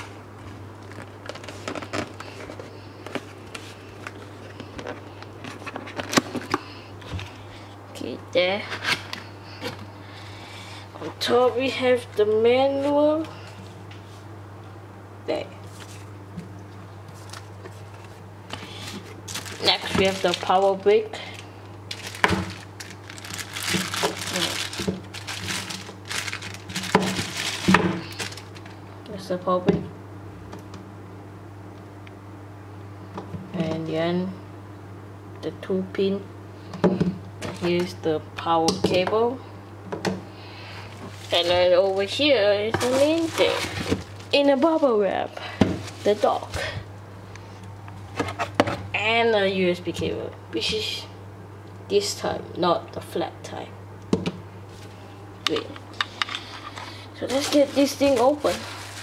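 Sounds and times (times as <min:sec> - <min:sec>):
low electrical hum: 0:00.0 - 0:59.0
cardboard packaging rustling: 0:00.5 - 0:07.4, 0:17.1 - 0:28.8, 0:41.0 - 0:45.0, 0:45.8 - 0:46.5, 0:57.2 - 0:59.0.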